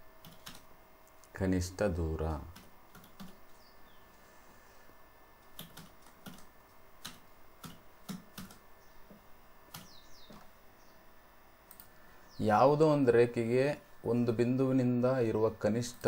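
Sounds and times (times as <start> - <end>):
computer keyboard keystrokes: 0.2 - 1.3, 2.5 - 3.4, 5.4 - 8.6, 9.7 - 10.5, 11.7 - 11.9.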